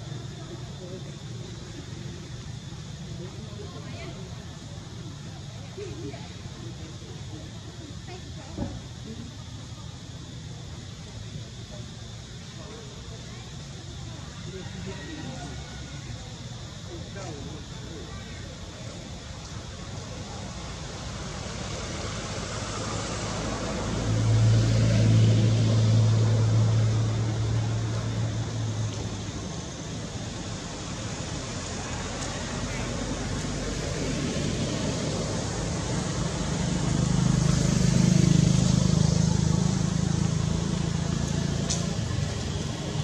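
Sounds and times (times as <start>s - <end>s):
outdoor hiss: 0.0s - 43.0s
vehicle passing by: 20.4s - 43.0s.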